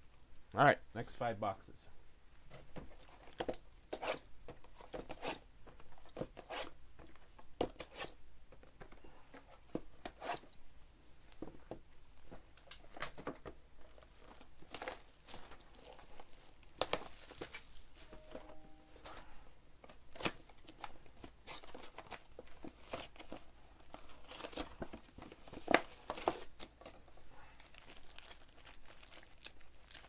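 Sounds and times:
plastic shrink wrap crinkling: 13.8s - 18.0s, 27.6s - 30.0s.

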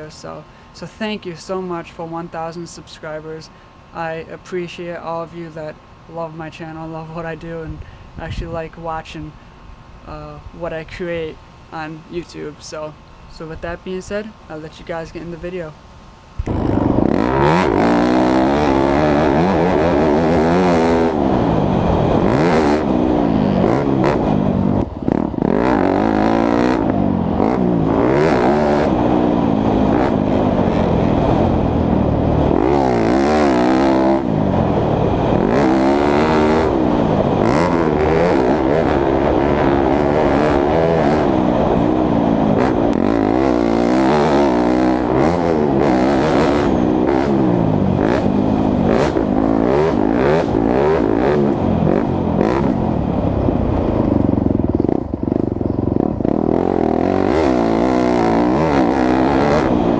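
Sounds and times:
motocross engine revving: 16.4s - 59.9s.

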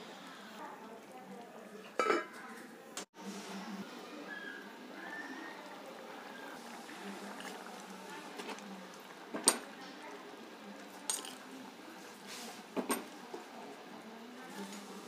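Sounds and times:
ladle clinking against pot: 2.0s - 2.4s
ladle stirring in a pot: 4.4s - 15.0s.

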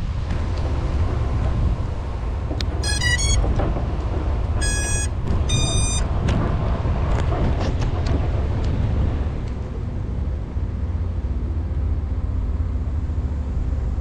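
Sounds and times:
steady low rumble: 0.0s - 14.0s
electronic beeps: 2.8s - 3.4s, 4.6s - 6.1s.

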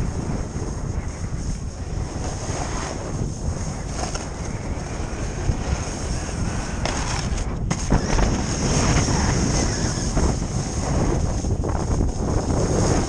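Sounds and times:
snowboard scraping on rail: 0.0s - 13.0s
snowboard sliding on snow: 0.0s - 13.0s
wind buffeting microphone: 0.0s - 13.0s.

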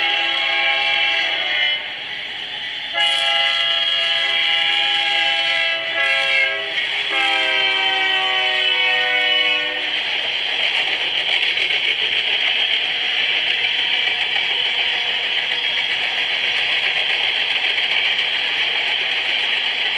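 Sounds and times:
locomotive air horn blasts: 0.0s - 2.0s, 2.9s - 9.9s
freight cars rolling on rails: 0.0s - 19.9s.

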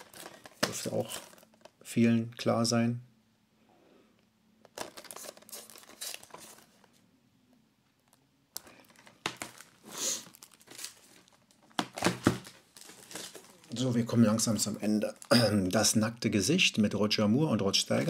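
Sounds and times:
plastic case crinkling: 0.0s - 1.8s, 4.6s - 7.0s, 8.0s - 16.0s.

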